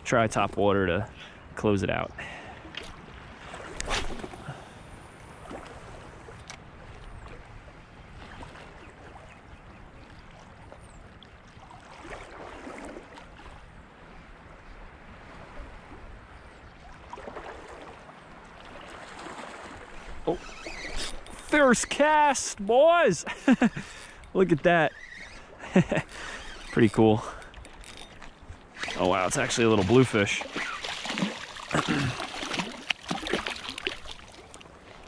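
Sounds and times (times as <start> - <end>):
waves lapping against boulders: 1.9 - 35.0.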